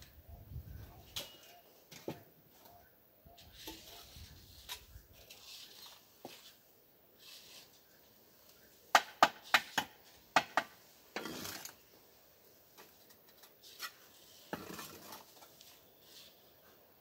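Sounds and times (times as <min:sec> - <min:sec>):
trowel scraping mortar: 0:03.4 - 0:06.6, 0:11.2 - 0:11.8, 0:13.5 - 0:15.4.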